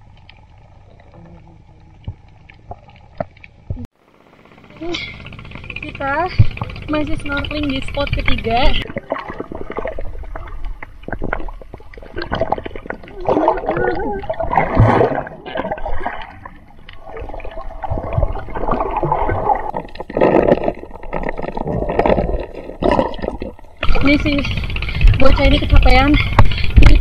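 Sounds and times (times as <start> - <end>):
underwater gurgling and sloshing: 0.0 - 27.0.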